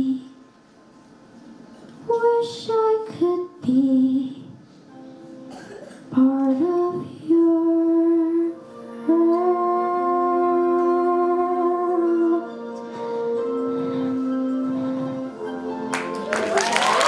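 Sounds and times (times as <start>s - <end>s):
soft sustained accompaniment: 0.0s - 17.0s
woman singing into microphone: 2.0s - 4.6s, 6.1s - 12.5s.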